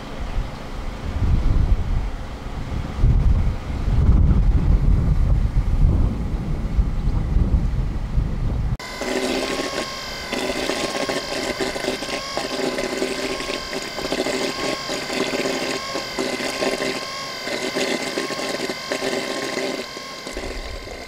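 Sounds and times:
machinery engine whine and churning: 6.5s - 21.0s.

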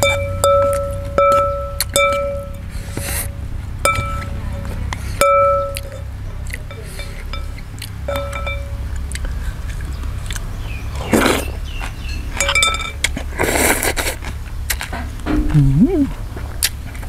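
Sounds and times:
spoon clinking against bowl: 8.1s - 8.8s, 12.4s - 13.0s
slurping soup: 13.4s - 14.2s
steady low hum: 15.1s - 16.5s.

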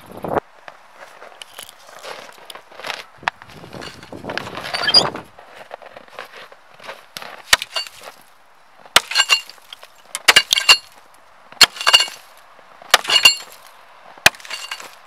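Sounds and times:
metal blade chopping ice: 7.5s - 8.0s, 9.0s - 10.9s, 11.6s - 12.3s, 12.9s - 13.6s, 14.2s - 15.0s.

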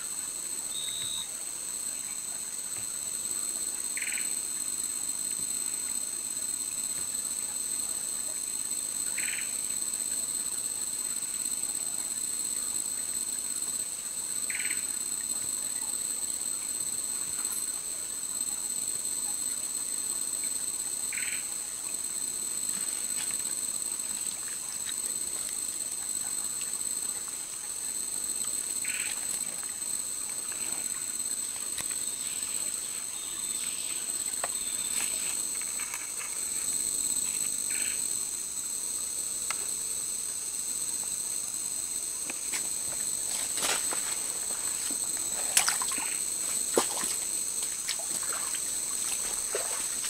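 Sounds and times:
high-pitched insect chorus: 0.0s - 50.0s.

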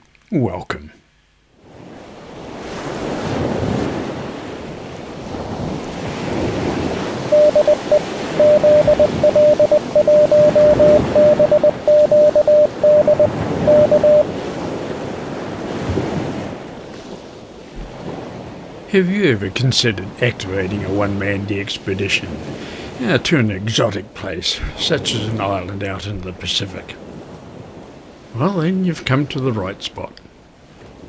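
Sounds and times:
surf washing on beach: 1.6s - 23.3s
morse code tone: 7.3s - 14.3s.

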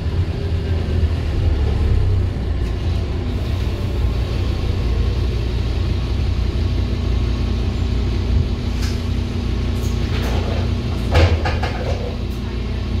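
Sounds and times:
bus diesel engine running: 0.0s - 13.0s
loud knock: 11.1s - 12.0s.

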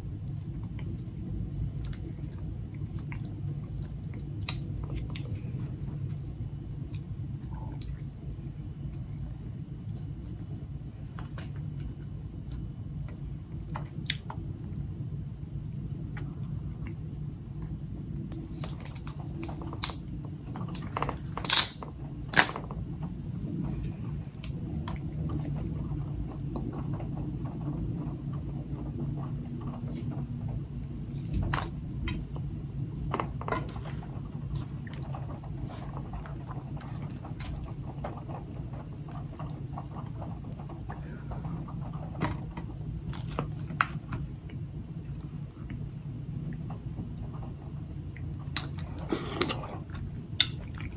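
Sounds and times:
chewing and wet squishing: 0.0s - 45.9s, 46.5s - 50.9s
steady low hum: 0.0s - 50.9s
crab shells cracking: 20.7s - 22.6s.

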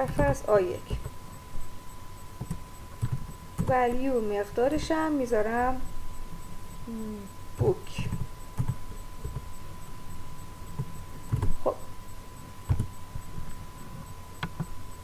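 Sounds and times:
faint steady high tone: 0.0s - 15.0s
computer keyboard keystrokes: 2.4s - 3.8s, 7.6s - 9.5s.

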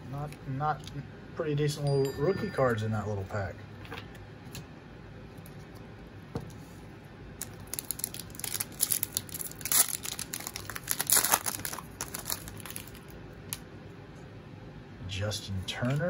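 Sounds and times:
foil wrapper tearing and crinkling: 7.4s - 13.6s.

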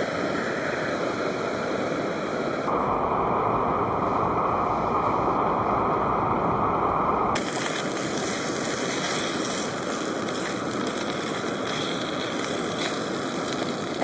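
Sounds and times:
bacon sizzling in a frying pan: 7.4s - 14.0s.

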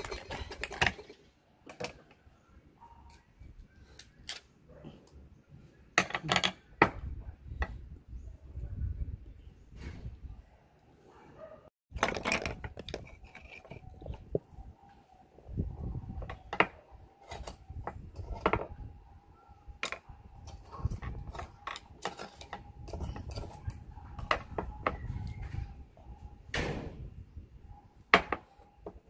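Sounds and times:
oyster shells clicking and scraping: 0.0s - 2.0s, 11.9s - 14.4s.

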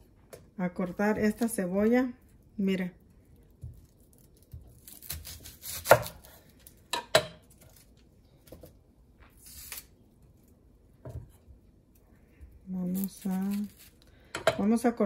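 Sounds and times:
knife cutting onion on wooden board: 4.4s - 7.8s.

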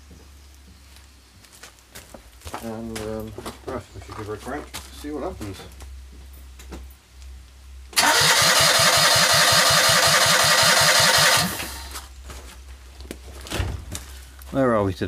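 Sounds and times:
engine cranking on starter motor: 8.0s - 12.0s.

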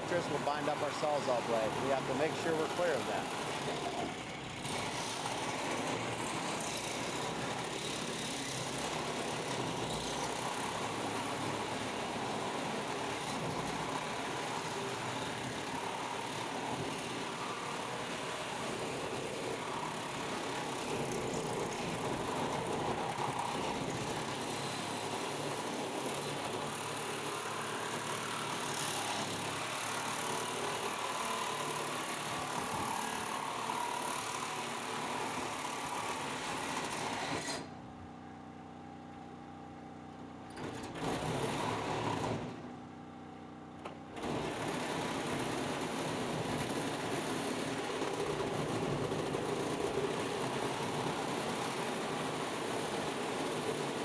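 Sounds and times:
reciprocating saw cutting sheet metal: 0.1s - 37.7s.

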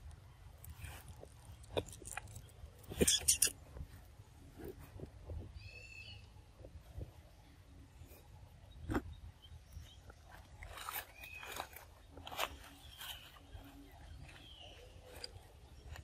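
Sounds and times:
dry leaves and twigs crackling: 0.0s - 4.0s, 9.6s - 16.0s.

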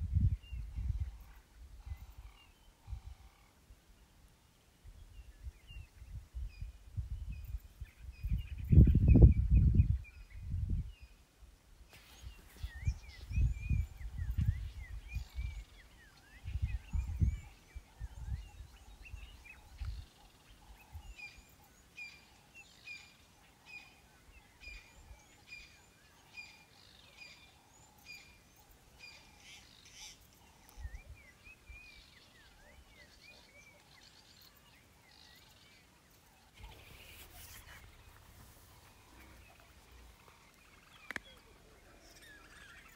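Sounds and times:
wild birds calling: 11.9s - 42.9s.

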